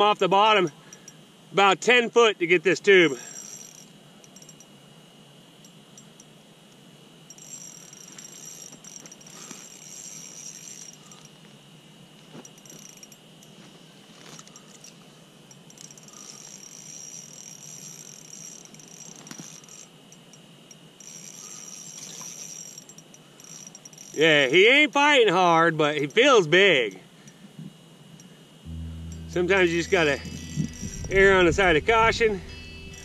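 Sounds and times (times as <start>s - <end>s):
fishing reel whirring: 3.0s - 4.7s, 7.3s - 11.5s, 12.4s - 13.2s, 14.4s - 20.0s, 20.7s - 25.3s, 28.7s - 33.0s.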